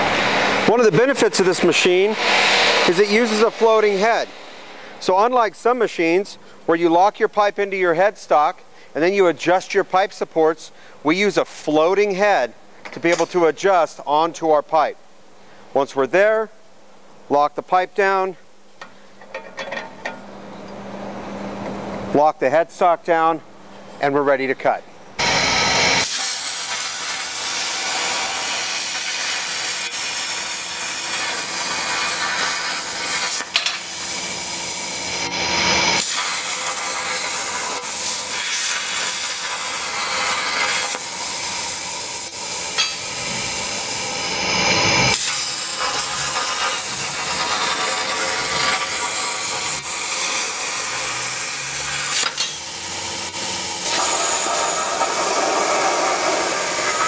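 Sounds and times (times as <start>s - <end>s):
plasma torch hissing: 0.0s - 7.2s, 25.2s - 57.0s.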